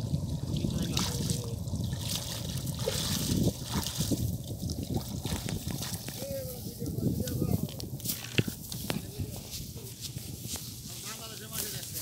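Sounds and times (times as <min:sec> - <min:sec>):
small water splashes: 0:00.0 - 0:06.2
water trickling off a net: 0:00.0 - 0:06.2
wind rumble on microphone: 0:00.0 - 0:12.0.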